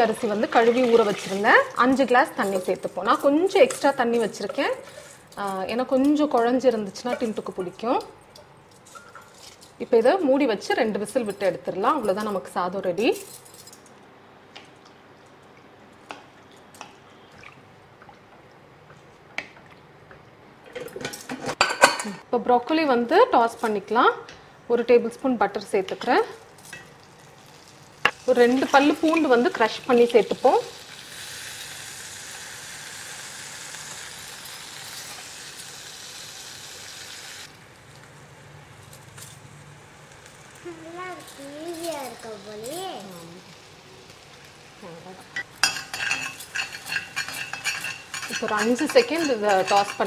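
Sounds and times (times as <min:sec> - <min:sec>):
butter sizzling in a pan: 0:27.1 - 0:38.4, 0:39.9 - 0:44.9, 0:45.5 - 0:50.0.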